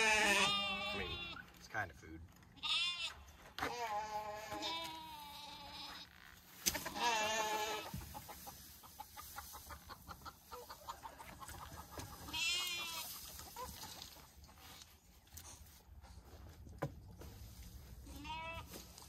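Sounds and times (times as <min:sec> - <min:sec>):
sheep bleating: 0:00.0 - 0:01.4, 0:02.6 - 0:06.1, 0:06.7 - 0:08.0, 0:12.3 - 0:13.1, 0:18.0 - 0:18.7
chickens clucking: 0:07.6 - 0:15.3.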